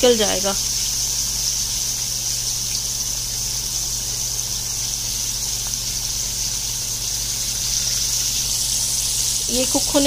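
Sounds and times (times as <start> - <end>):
chicken deep-frying sizzle: 0.0 - 10.0.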